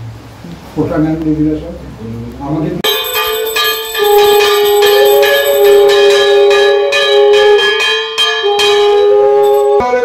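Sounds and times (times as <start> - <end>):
hand bell rung rapidly: 2.8 - 6.8, 9.4 - 9.8
long held note: 2.9 - 10.0.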